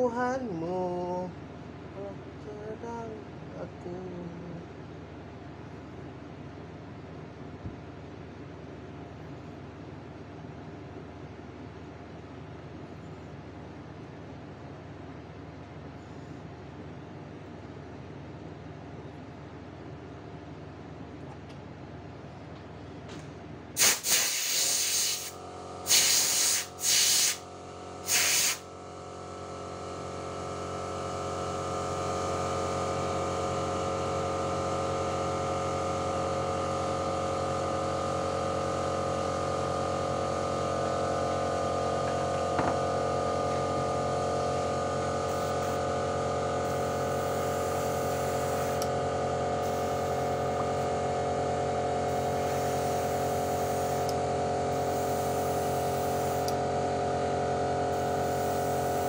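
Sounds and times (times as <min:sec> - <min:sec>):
air compressor motor hum: 0:22.5 - 0:59.0
airbrush spraying hiss: 0:23.8 - 0:27.4, 0:28.0 - 0:28.6, 0:45.2 - 0:45.8, 0:46.6 - 0:48.9, 0:49.6 - 0:50.9, 0:52.1 - 0:54.1, 0:54.7 - 0:56.5, 0:57.9 - 0:59.0.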